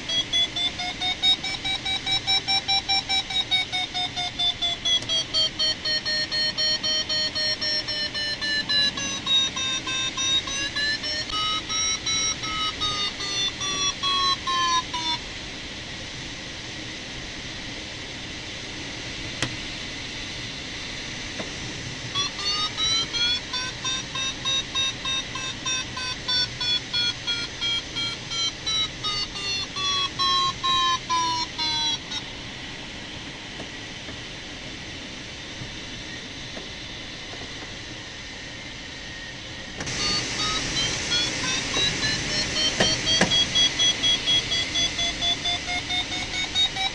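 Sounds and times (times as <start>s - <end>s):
variometer pulsed beeps: 0.0s - 15.2s, 22.2s - 32.3s, 39.9s - 46.9s.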